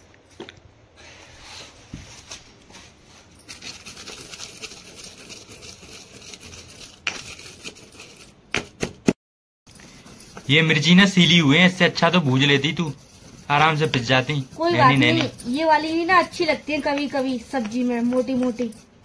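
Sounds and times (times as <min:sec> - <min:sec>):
stone pestle grinding in mortar: 0:10.1 - 0:19.0.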